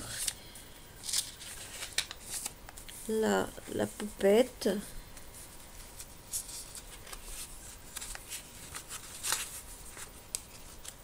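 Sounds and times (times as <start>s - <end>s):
paper pages rustling: 1.0s - 3.1s, 5.1s - 11.0s.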